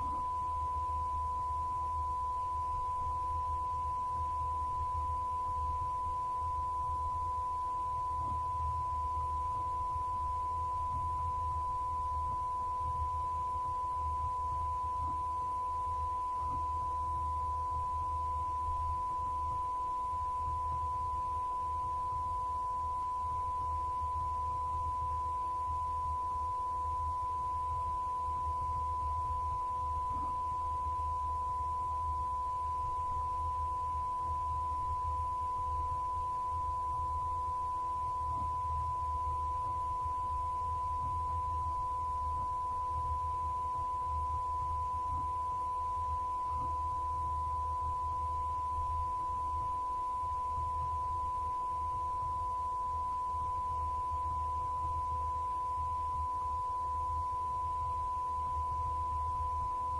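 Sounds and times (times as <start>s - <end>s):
fainter lower tone: 0.0s - 59.9s
low hum: 0.0s - 59.9s.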